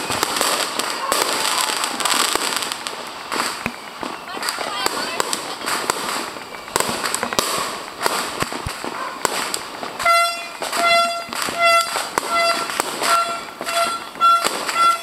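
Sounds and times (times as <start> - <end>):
firecrackers cracking and popping: 0.0 - 15.0
horn honking: 10.0 - 15.0.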